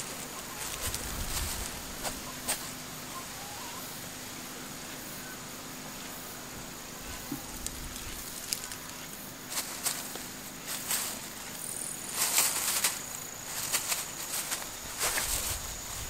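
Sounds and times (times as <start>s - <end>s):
light ticks and rustles: 0.0s - 2.8s, 7.0s - 16.0s
steady hiss: 0.0s - 16.0s.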